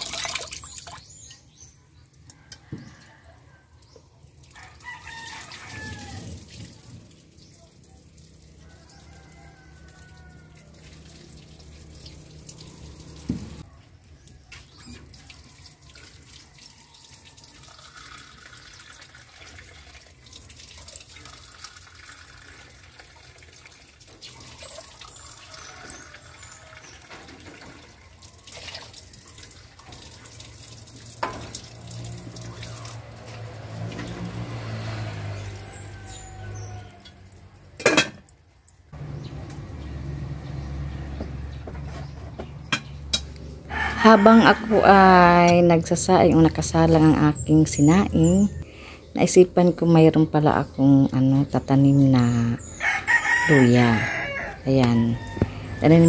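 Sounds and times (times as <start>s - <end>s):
water sloshing and pouring: 0.0s - 42.4s.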